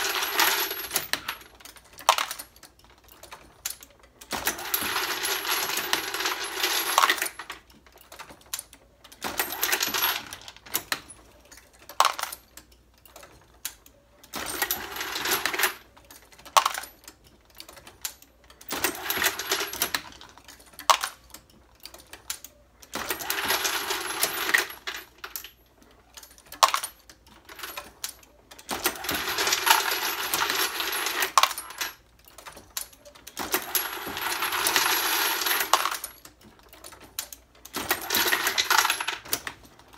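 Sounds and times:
metal cartridges clinking and rattling: 0.0 - 39.9.

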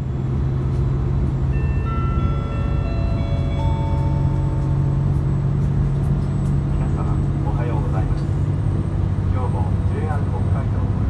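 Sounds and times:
railcar diesel drone: 0.0 - 11.0
bell-like announcement chime: 1.5 - 5.0.

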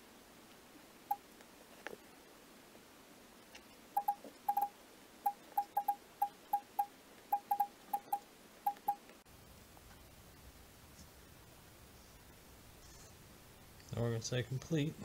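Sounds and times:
keyboard key-press blips: 4.0 - 4.7, 5.6 - 9.0.

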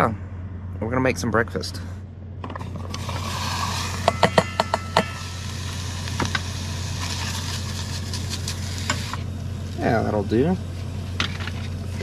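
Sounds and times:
steady low hum: 0.0 - 12.0
gas stove burner hissing: 2.8 - 12.0.

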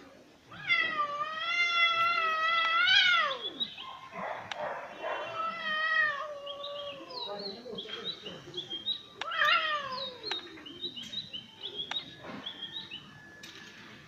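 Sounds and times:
cat yowling: 0.5 - 3.7, 5.0 - 7.4, 9.2 - 10.3.

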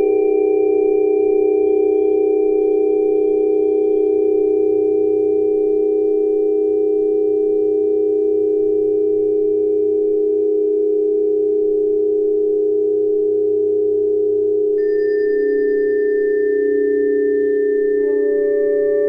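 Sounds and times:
steady electronic tone: 14.8 - 19.0.

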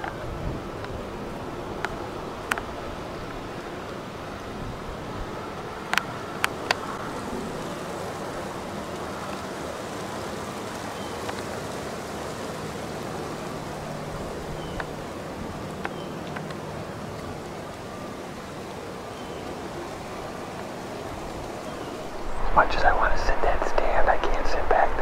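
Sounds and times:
faint ticks: 15.7 - 16.6
steady hiss: 21.3 - 25.0
faint low hum: 21.9 - 25.0.

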